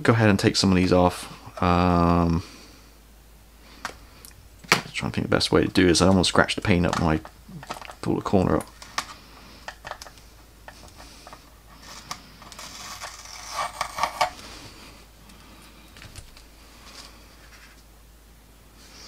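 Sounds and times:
crackly peeling of mask: 7.2s - 14.6s, 15.2s - 17.9s
fingernails scraping paint masks: 8.8s - 14.5s.

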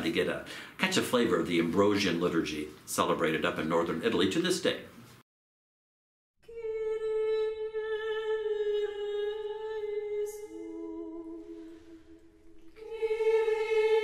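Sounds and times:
unaccompanied chant singing: 7.9s - 14.0s.

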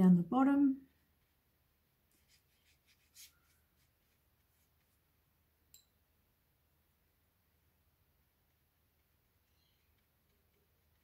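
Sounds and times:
faint glass clink: 5.7s - 6.0s.

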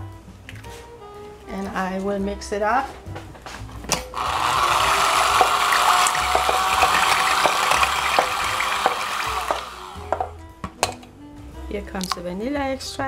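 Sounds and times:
electric hand mixer whisking liquid: 4.2s - 10.3s.

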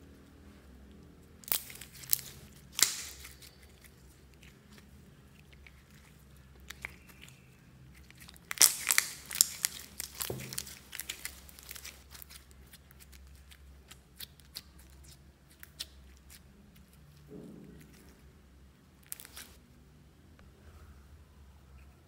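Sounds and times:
slime squeezed by hand crackling: 1.4s - 16.4s, 19.0s - 19.6s.

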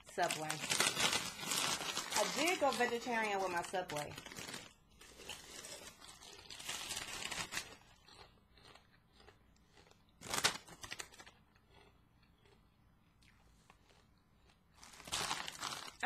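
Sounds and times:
foil bag crackling: 0.0s - 7.8s, 10.2s - 11.2s, 14.8s - 16.0s.

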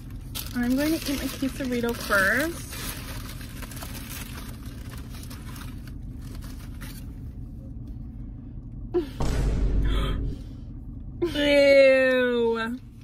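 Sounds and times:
food wrapper crinkling: 0.0s - 7.2s.

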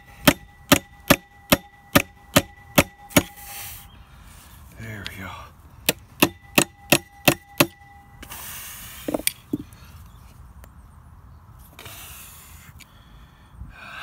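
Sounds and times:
hammer striking metal chisel: 0.2s - 3.4s, 5.9s - 8.0s.

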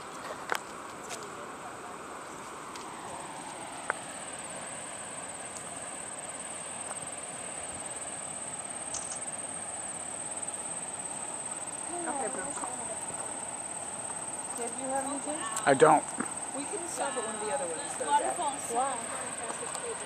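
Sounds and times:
high insect buzz: 2.2s - 20.0s
sharp click: 8.9s - 9.3s.

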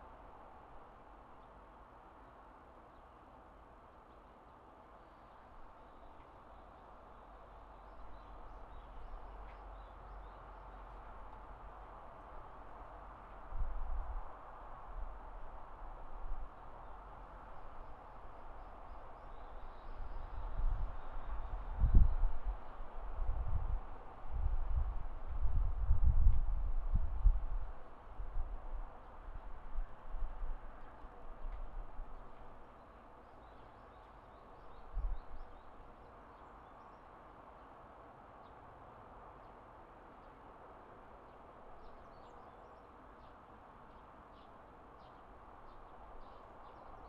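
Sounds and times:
faint outdoor hiss: 0.0s - 47.0s
wind buffeting microphone: 19.6s - 32.3s.

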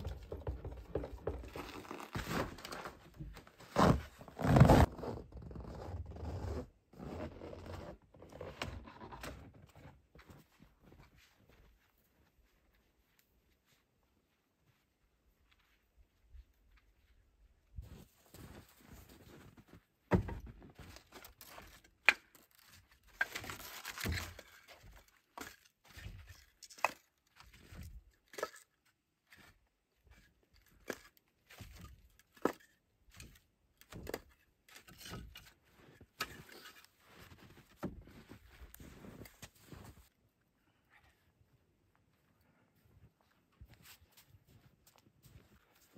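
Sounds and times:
footsteps: 10.1s - 21.1s, 35.4s - 40.2s, 42.0s - 45.9s.

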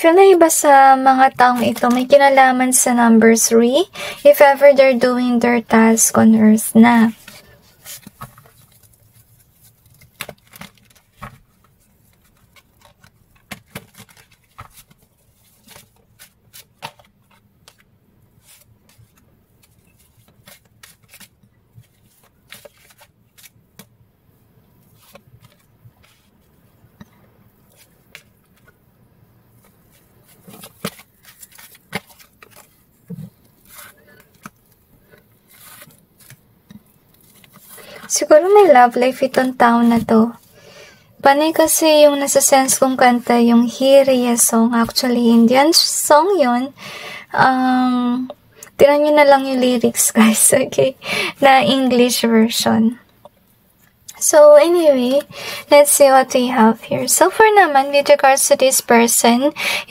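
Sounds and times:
cards being shuffled: 7.0s - 24.0s, 24.8s - 26.5s, 27.6s - 28.8s, 29.5s - 40.4s.

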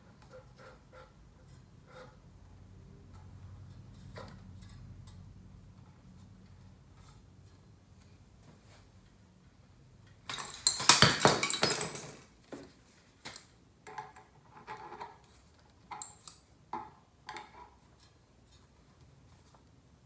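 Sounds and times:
metal hand tools clattering: 10.3s - 12.2s.

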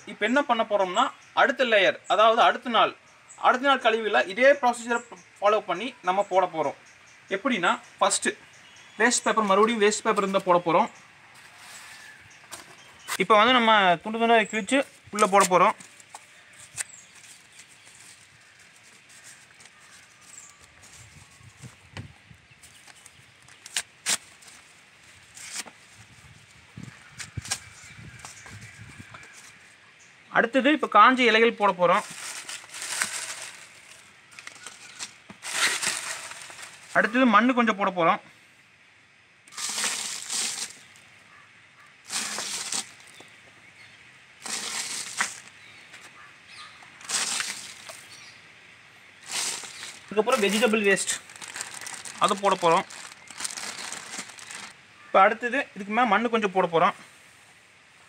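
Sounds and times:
soil dropped onto dry leaves: 14.7s - 21.6s, 22.6s - 26.1s, 27.1s - 28.5s, 31.7s - 37.2s, 39.5s - 41.1s, 42.0s - 43.4s, 44.4s - 46.2s, 47.0s - 48.2s, 49.2s - 54.8s
paper rustling: 15.2s - 21.6s, 22.7s - 26.0s, 32.0s - 37.2s, 39.5s - 40.8s, 42.1s - 43.2s, 44.4s - 46.1s, 47.0s - 48.1s, 49.2s - 54.8s
paper tearing: 32.0s - 37.0s, 42.1s - 43.1s, 44.4s - 45.5s.

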